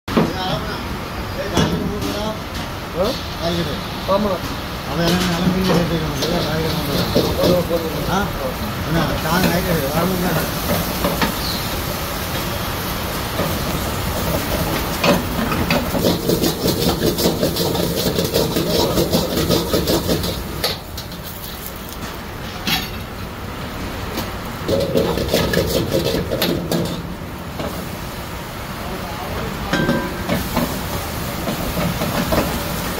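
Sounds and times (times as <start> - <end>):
gas burner rushing: 1.5 - 32.9
ladle scraping against wok: 13.4 - 23.0, 24.6 - 27.8
sharp ladle clanks on wok: 29.7 - 30.4.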